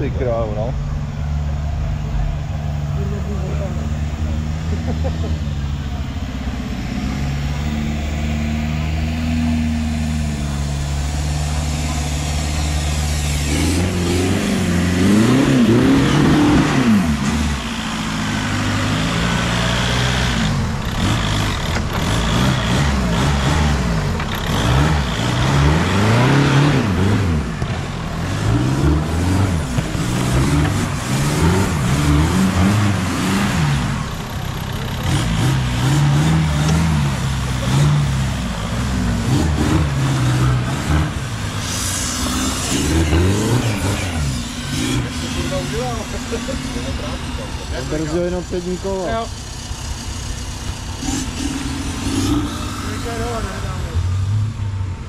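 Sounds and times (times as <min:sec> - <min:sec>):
buggy engine revving: 0:00.0 - 0:55.0.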